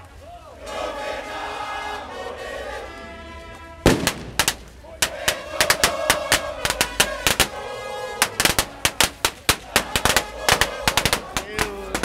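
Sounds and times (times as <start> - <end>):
marching crowd: 0.0 - 12.0
firecrackers cracking: 3.8 - 12.0.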